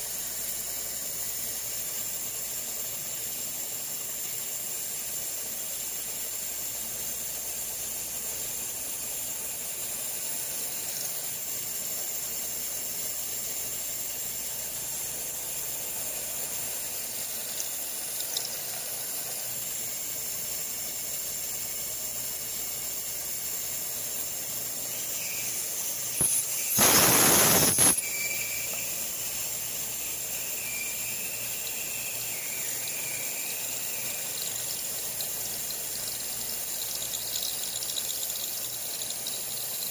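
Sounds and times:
coolant spraying hiss: 0.0 - 39.9
faint high whine: 9.4 - 39.9
milling machine running: 24.7 - 39.6.

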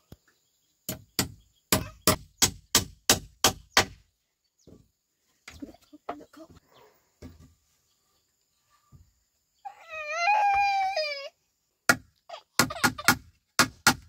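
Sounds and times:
hammer striking wooden rail: 0.9 - 4.0, 11.9 - 14.0
infant crying: 9.6 - 11.4.

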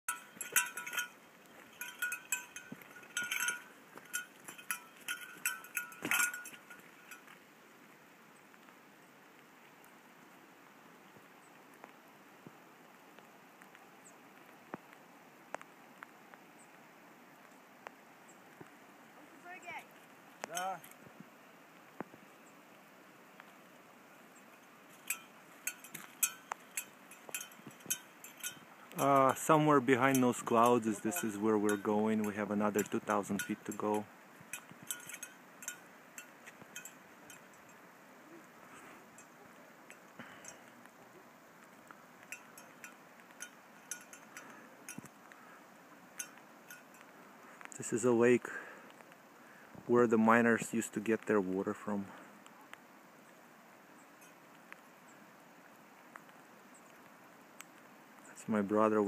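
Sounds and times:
cowbell clanking: 0.1 - 7.3, 25.0 - 37.8, 42.3 - 45.1
faint background hiss: 0.1 - 59.0.

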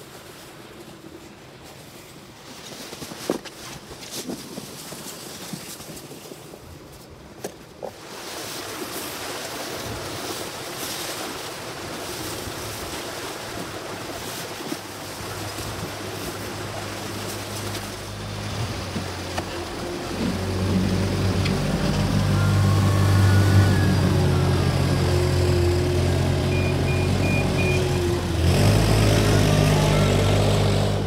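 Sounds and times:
wheel loader engine hum: 14.9 - 31.0.

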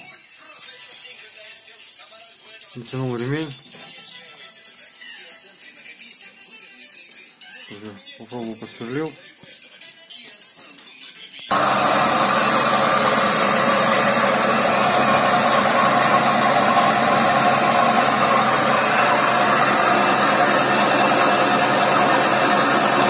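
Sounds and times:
drill press motor humming: 11.5 - 23.0.

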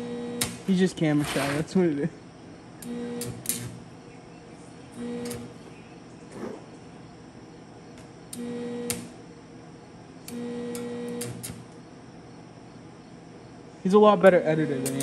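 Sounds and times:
stick welder buzzing: 0.0 - 1.8, 2.7 - 4.0, 4.6 - 6.4, 7.7 - 12.0, 14.4 - 15.0
welding cracks: 0.0 - 1.8, 2.8 - 3.9, 4.9 - 5.6, 7.9 - 9.3, 10.2 - 11.8, 14.7 - 15.0.

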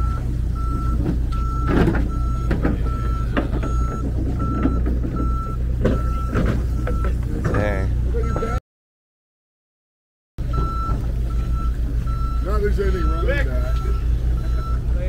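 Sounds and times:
low engine hum: 0.0 - 8.6, 10.4 - 15.0
reversing alarm beeping: 0.0 - 8.6, 10.4 - 15.0
short knocks: 0.7 - 7.6.

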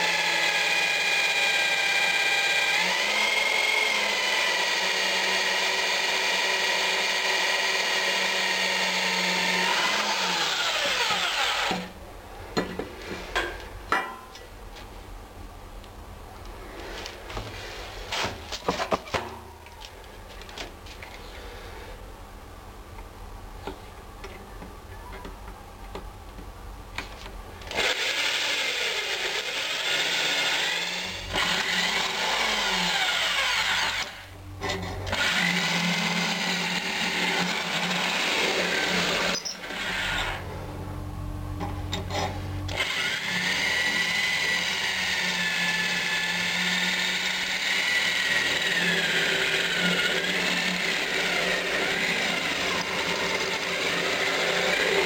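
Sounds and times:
electric drill boring through metal: 0.0 - 11.9, 27.7 - 40.4, 42.7 - 55.0.

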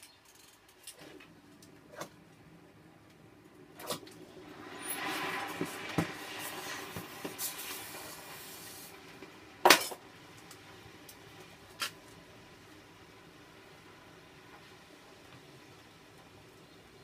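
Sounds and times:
hot glass hissing in water: 4.5 - 9.0.

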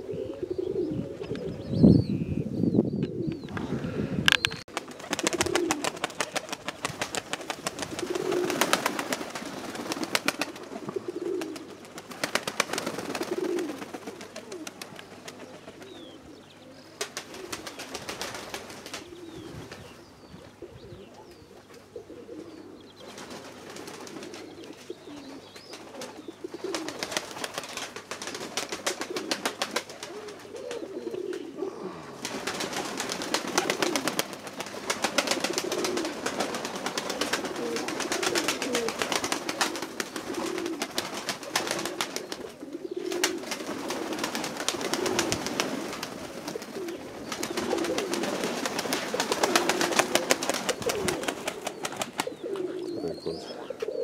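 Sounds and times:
pigeons cooing: 0.0 - 54.0.

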